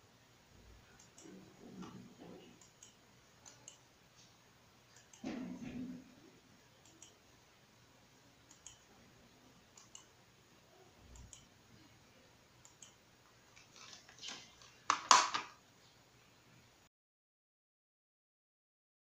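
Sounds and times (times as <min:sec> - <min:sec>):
computer mouse clicks: 0:01.0 - 0:03.8, 0:04.9 - 0:05.4, 0:06.8 - 0:07.2, 0:08.5 - 0:08.9, 0:09.7 - 0:10.1, 0:11.0 - 0:11.5, 0:12.6 - 0:14.4.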